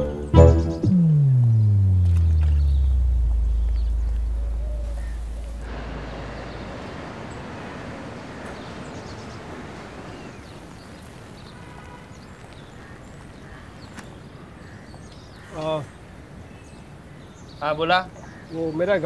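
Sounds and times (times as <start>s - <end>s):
deep low rumble: 0.3s - 6.6s
steady rain falling: 2.0s - 17.1s.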